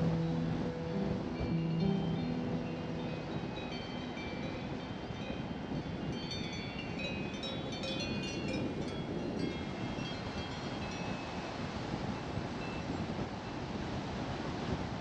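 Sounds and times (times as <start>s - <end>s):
faint high ringing tones: 0.0s - 11.5s
car tyre and wind noise: 4.6s - 15.0s.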